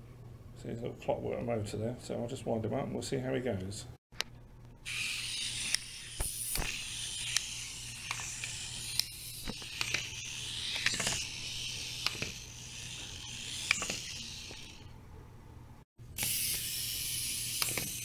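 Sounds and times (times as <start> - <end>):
wind-up toy motor whirring: 4.8 - 14.9, 16.2 - 18.0
toy cars clicking as they flip: 4.9 - 14.8, 16.2 - 18.0.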